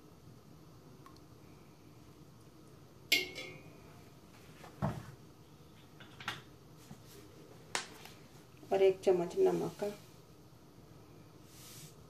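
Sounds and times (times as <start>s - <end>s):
spoon clinking against metal pot: 3.1s - 3.7s.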